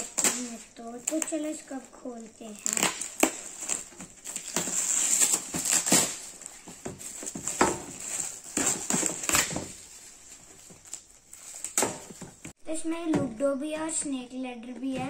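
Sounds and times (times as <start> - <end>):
foil gift wrap crinkling and tearing: 0.0 - 12.5.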